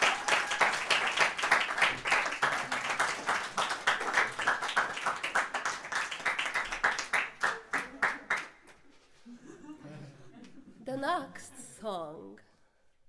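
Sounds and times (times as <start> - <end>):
audience applause: 0.0 - 8.6.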